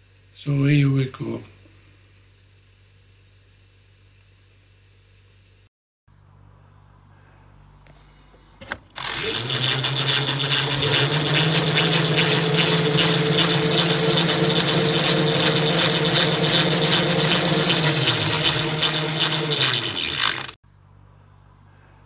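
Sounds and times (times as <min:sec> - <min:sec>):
rattle: 0:08.8 - 0:20.6
electric motor humming: 0:09.0 - 0:20.6.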